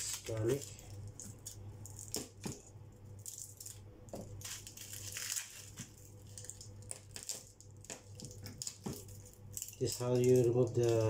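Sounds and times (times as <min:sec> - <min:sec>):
garlic skins crackling and rustling: 0:00.0 - 0:11.0.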